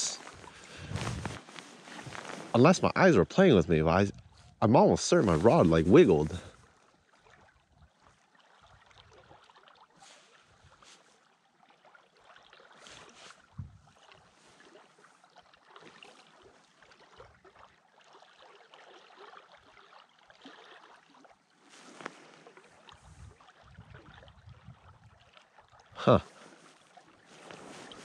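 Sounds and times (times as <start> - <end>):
wind buffeting microphone: 0.0 - 1.4, 3.6 - 4.6, 13.5 - 13.9, 23.0 - 25.2
river water flowing: 0.0 - 28.0.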